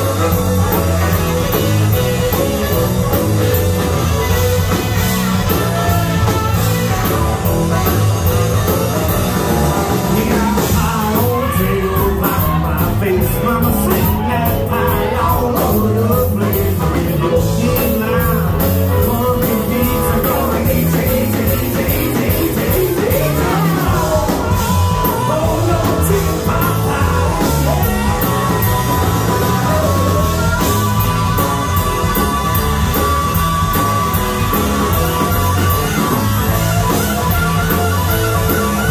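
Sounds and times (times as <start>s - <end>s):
saxophone: 0.0s - 10.7s, 21.1s - 38.9s
bass guitar: 0.0s - 38.9s
drums: 0.0s - 38.9s
electric guitar: 0.0s - 38.9s
person singing: 8.6s - 32.9s.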